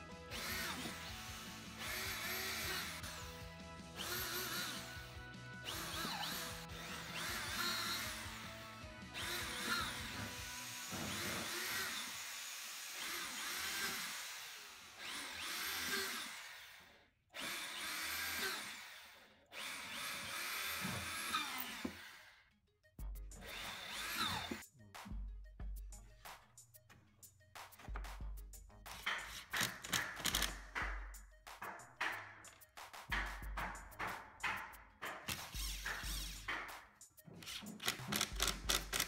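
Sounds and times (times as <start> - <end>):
electric drill boring into wood: 0.3 - 22.4, 23.4 - 24.6, 29.6 - 30.6, 35.3 - 36.5, 37.5 - 39.0.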